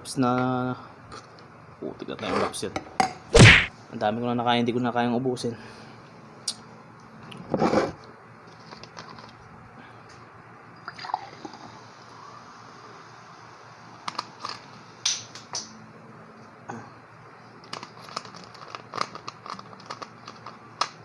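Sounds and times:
plastic bottle crinkling: 17.7s - 21.0s.

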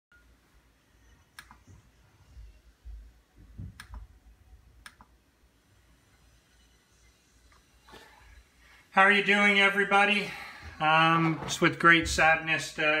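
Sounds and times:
computer mouse clicks: 1.4s - 1.6s, 3.7s - 4.1s, 4.8s - 5.1s.

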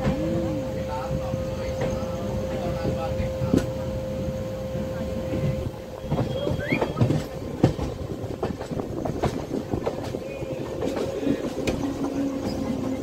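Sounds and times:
train wheels clicking over rail joints: 5.3s - 13.0s.

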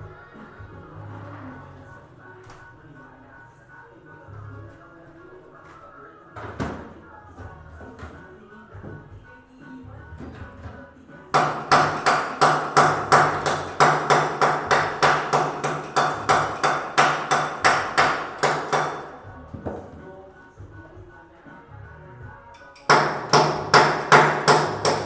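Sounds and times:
hammer blows ringing: 11.4s - 19.2s.

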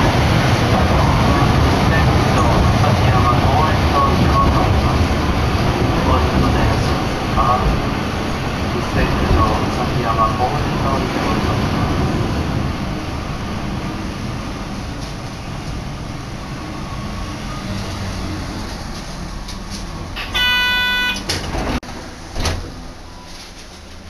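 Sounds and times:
streetcar wheels and motor rumbling: 0.0s - 24.0s
loud steady pitched tone: 20.2s - 21.3s.

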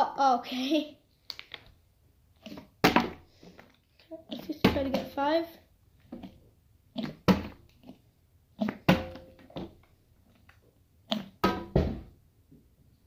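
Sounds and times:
plastic bottle thudding on glass table: 2.8s - 3.2s, 11.4s - 12.1s.

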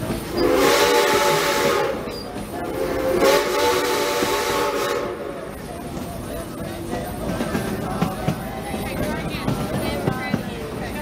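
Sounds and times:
steam locomotive whistle: 0.3s - 5.4s.

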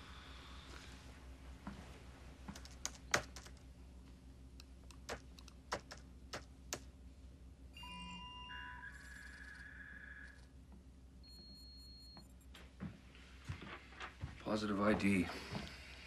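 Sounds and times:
computer keyboard keystrokes: 2.5s - 3.6s, 4.9s - 6.8s.

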